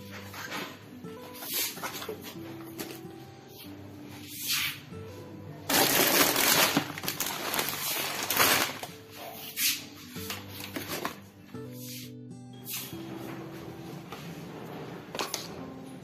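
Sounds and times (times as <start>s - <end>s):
background music: 0.0s - 16.0s
plastic snack packet crinkling: 5.7s - 8.9s.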